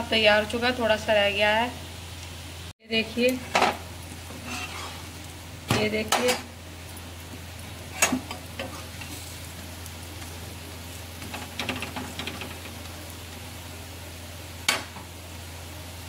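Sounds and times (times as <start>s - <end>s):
faint sizzling: 0.0s - 16.0s
steel spatula scraping on iron pan: 4.3s - 5.2s.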